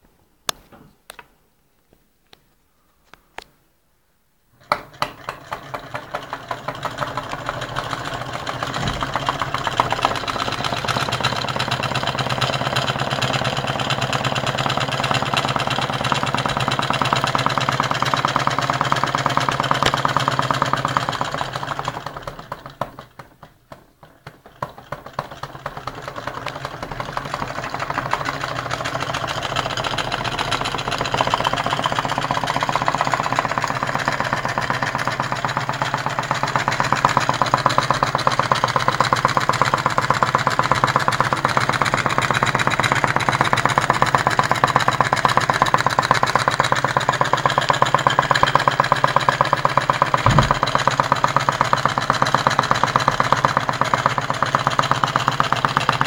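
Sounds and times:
stirling engine clatter: 4.9s - 23.5s, 24.5s - 56.0s.

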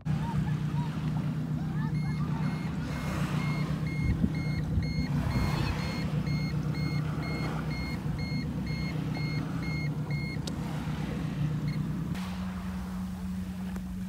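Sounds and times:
low hum: 0.0s - 14.0s
short alarm beeps: 1.9s - 10.4s.

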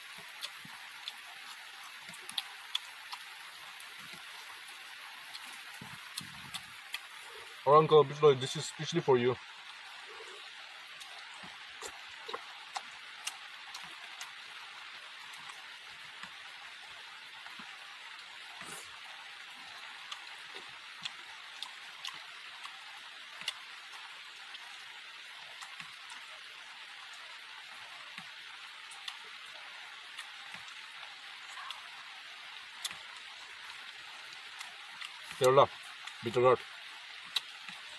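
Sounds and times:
man chewing food: 0.0s - 7.6s, 9.7s - 16.6s, 17.4s - 27.2s, 28.1s - 31.8s, 32.7s - 36.3s, 37.1s - 37.9s
steady hiss: 0.0s - 37.9s
mouth clicks and smacks: 11.0s - 14.3s.

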